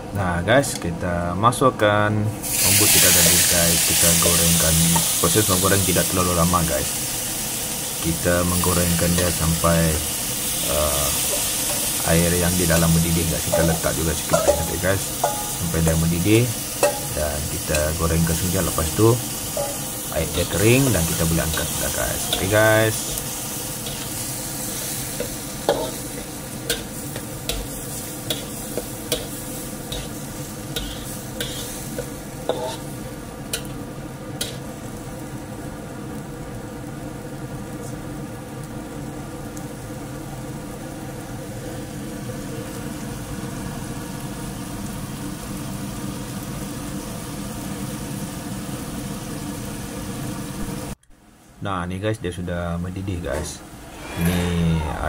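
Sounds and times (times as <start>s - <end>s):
food sizzling in a wok: 2.3s - 51.0s
metal spatula scraping a wok: 13.5s - 15.6s, 16.8s - 17.1s, 19.6s - 20.0s, 21.6s - 32.9s.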